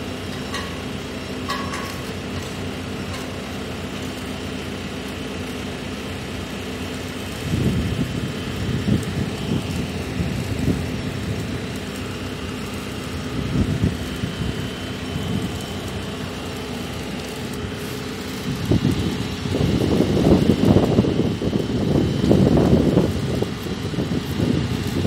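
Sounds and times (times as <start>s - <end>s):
telehandler engine running: 0.0s - 25.0s
wind buffeting the microphone: 7.4s - 11.7s, 13.2s - 15.6s, 18.4s - 25.0s.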